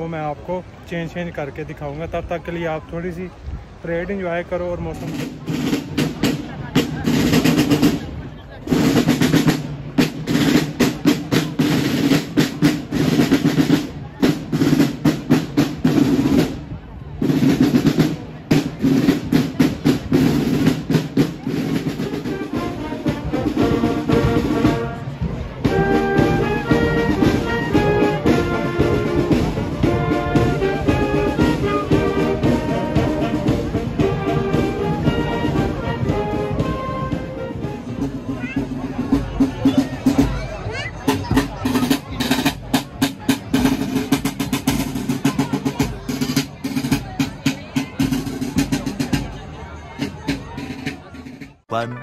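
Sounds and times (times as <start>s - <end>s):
marching band playing a tune: 0.0s - 52.0s
brass held notes: 21.8s - 38.7s.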